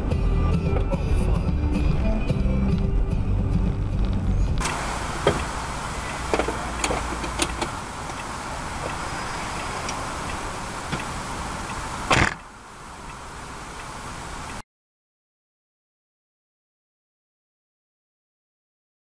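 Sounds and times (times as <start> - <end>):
engine and road noise hiss: 0.0 - 14.6.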